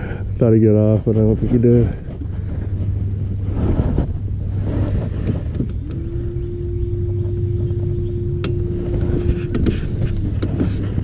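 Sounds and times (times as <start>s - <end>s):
low rumble: 0.0s - 11.0s
small motor humming: 2.7s - 11.0s.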